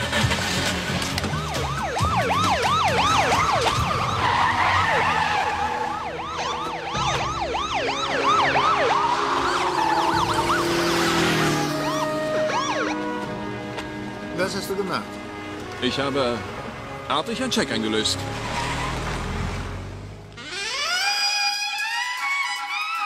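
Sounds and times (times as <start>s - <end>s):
police sirens yelping: 0.0s - 13.6s, 20.4s - 23.0s
background music: 0.0s - 20.0s.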